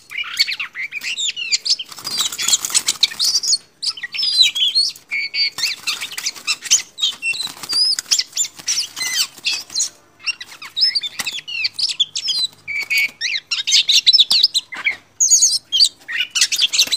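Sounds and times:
bird singing whistles and chirps: 0:00.0 - 0:16.9
wings fluttering against wire cage: 0:01.0 - 0:13.3.

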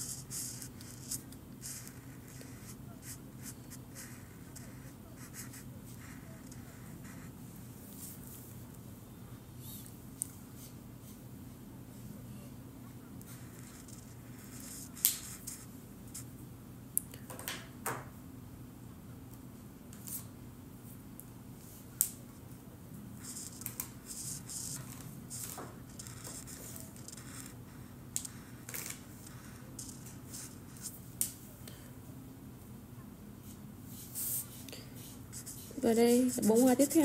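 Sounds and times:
marker scratching on paper: 0:00.0 - 0:07.4, 0:13.2 - 0:16.3, 0:23.2 - 0:31.0, 0:34.0 - 0:37.0
faint low hum: 0:00.0 - 0:37.0.

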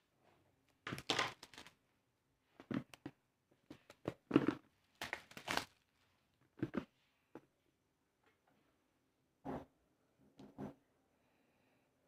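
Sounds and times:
plastic wrap tearing and crinkling: 0:00.9 - 0:01.8, 0:04.9 - 0:06.0.

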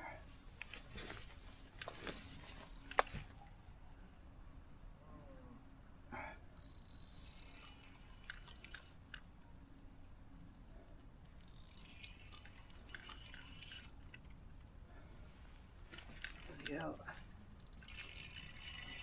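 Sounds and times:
fishing reel clicking: 0:06.6 - 0:09.2, 0:11.4 - 0:14.2, 0:16.1 - 0:19.0.

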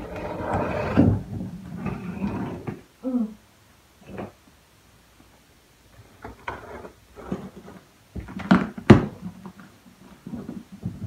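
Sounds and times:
cardboard rustling and scraping: 0:06.1 - 0:11.0.

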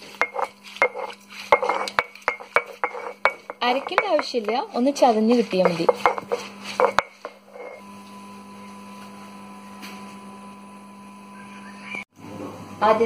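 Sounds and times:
stone roller scraping on stone: 0:00.0 - 0:07.8.

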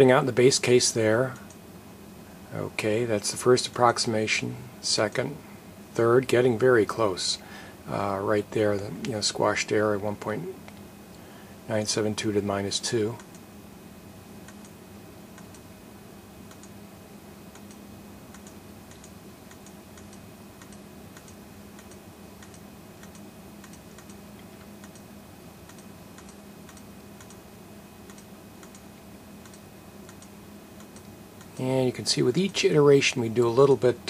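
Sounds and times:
steady low hum: 0:00.0 - 0:34.0
light computer clicks: 0:01.3 - 0:01.6, 0:13.2 - 0:13.5, 0:14.4 - 0:14.8, 0:15.4 - 0:15.7, 0:16.5 - 0:16.8, 0:17.5 - 0:27.4, 0:28.0 - 0:31.6.

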